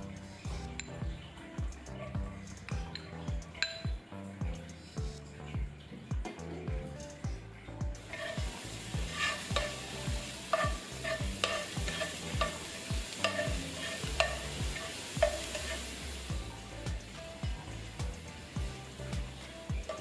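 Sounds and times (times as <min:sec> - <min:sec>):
garlic sizzling in hot oil: 0:08.0 - 0:20.0
metal spatula scraping pan: 0:08.1 - 0:16.0.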